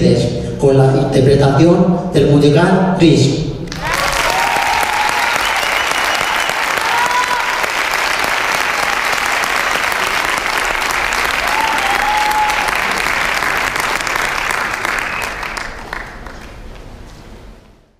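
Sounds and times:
audience applauding: 3.7s - 17.0s.

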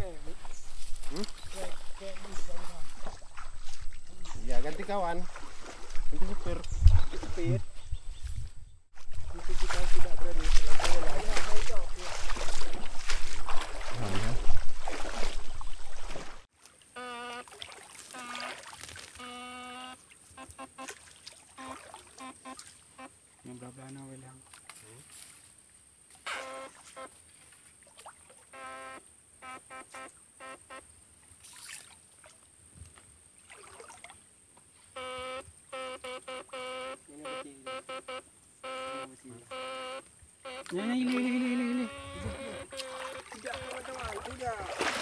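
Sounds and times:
water swishing: 0.0s - 7.8s, 8.9s - 19.3s, 40.7s - 45.0s
wading and splashing in stream: 0.0s - 29.2s, 31.0s - 35.7s, 39.2s - 45.0s
short electric buzzes: 26.2s - 26.8s.

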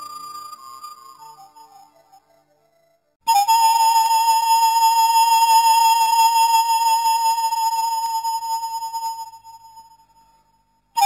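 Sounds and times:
high flute note: 3.3s - 9.6s.

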